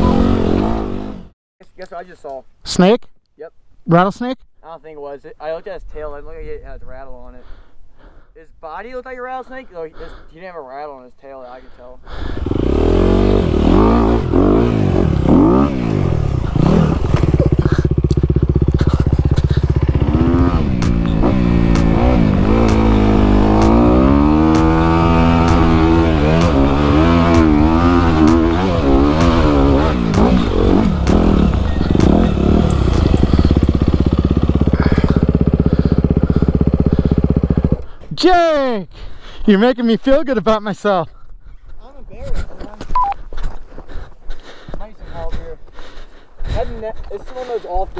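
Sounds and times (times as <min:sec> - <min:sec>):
dirt bike engine revving: 0:00.0 - 0:01.4, 0:12.2 - 0:37.9.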